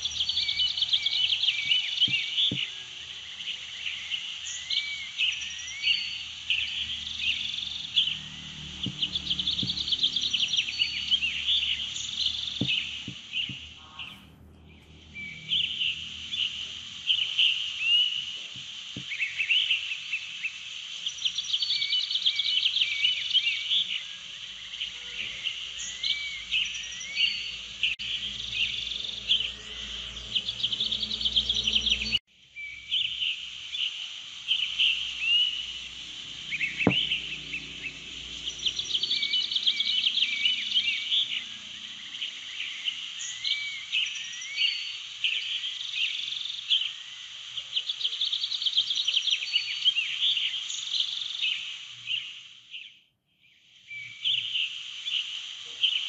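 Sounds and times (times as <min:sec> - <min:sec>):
birds chirping and warbling: 0:00.0 - 0:56.0.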